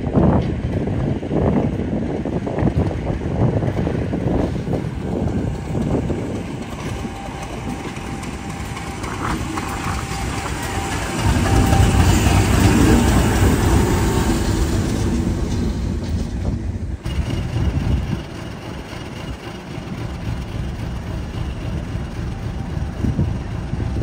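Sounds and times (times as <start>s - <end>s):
diesel locomotive rumbling: 0.0s - 24.0s.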